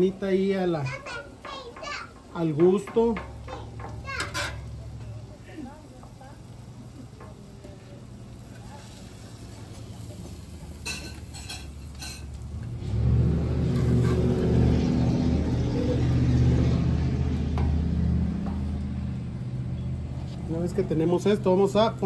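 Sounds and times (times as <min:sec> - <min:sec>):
metal spatulas on griddle: 0:00.0 - 0:22.0
low engine rumble: 0:02.4 - 0:22.0.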